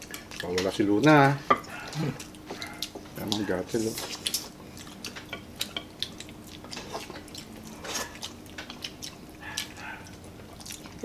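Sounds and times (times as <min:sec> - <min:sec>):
people eating and slurping: 0:01.6 - 0:10.0.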